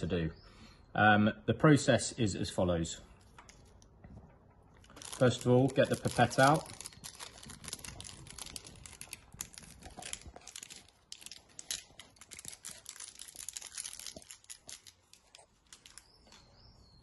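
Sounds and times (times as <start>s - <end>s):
plastic wrapper crinkling: 4.7s - 16.4s.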